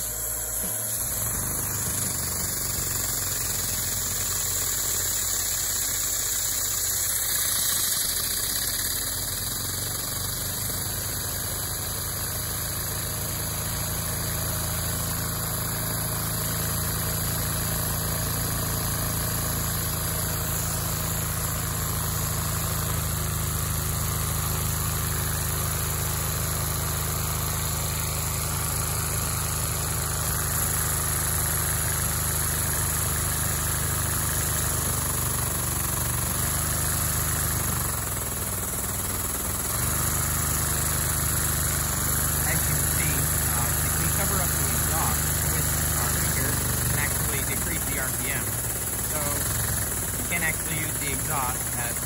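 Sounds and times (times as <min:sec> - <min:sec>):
vacuum cleaner suction hiss: 0:00.0 - 0:10.1
fast mechanical clatter: 0:00.0 - 0:52.0.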